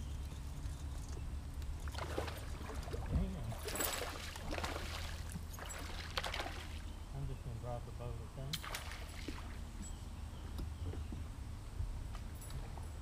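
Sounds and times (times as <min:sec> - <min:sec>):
steady low hum: 0:00.0 - 0:13.0
water splashing and trickling: 0:01.7 - 0:07.0, 0:08.5 - 0:09.8.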